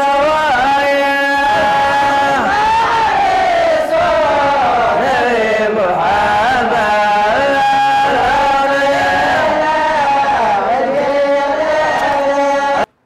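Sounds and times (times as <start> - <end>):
young men chanting devotional song: 0.0 - 12.9
lead voice on microphone: 0.0 - 13.0.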